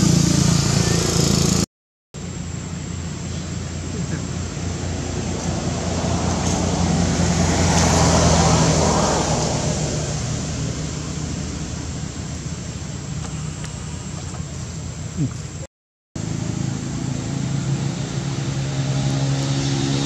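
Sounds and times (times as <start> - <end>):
motor vehicle passing: 0.0 - 20.0
steady low hum: 2.2 - 20.0.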